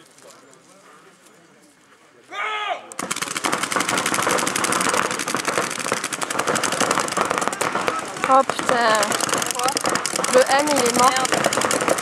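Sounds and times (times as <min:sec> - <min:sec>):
paintball markers firing: 0:03.0 - 0:12.0.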